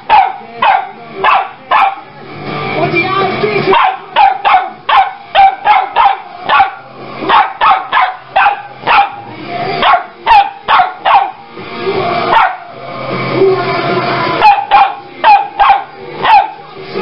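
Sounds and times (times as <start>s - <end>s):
dog barking high-pitched: 0.0s - 2.1s, 3.7s - 9.2s, 9.8s - 11.4s, 12.3s - 12.7s, 14.4s - 16.6s.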